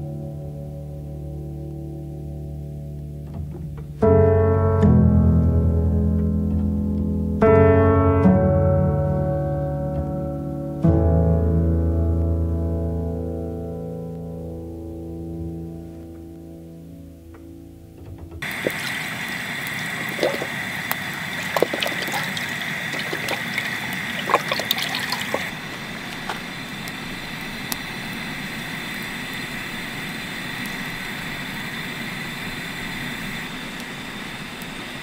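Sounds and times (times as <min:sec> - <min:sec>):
liquid glugging from a carton: 0:18.4 - 0:26.4
gas burner hissing: 0:18.4 - 0:35.0.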